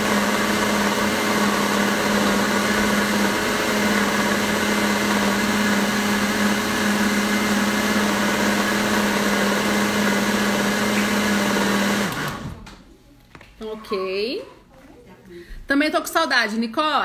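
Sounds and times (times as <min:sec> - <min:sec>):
blender motor running: 0:00.0 - 0:12.6.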